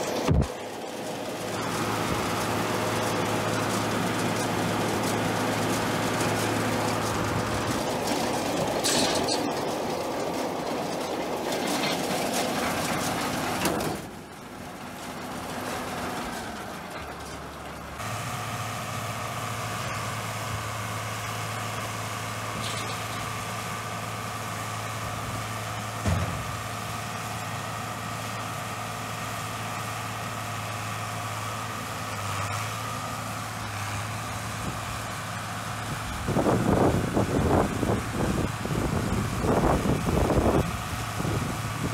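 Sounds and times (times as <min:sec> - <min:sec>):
tractor engine running: 0:00.0 - 0:41.9
thump: 0:26.0 - 0:26.6.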